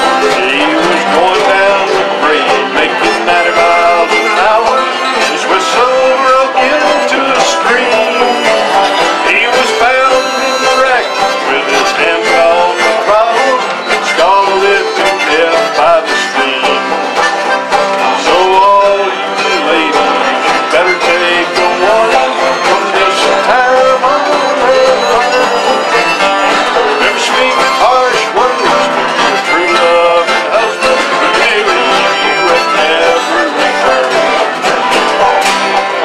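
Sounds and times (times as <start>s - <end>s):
acoustic guitars strumming chords: 0.0s - 36.0s
fiddle sliding melody: 0.0s - 36.0s.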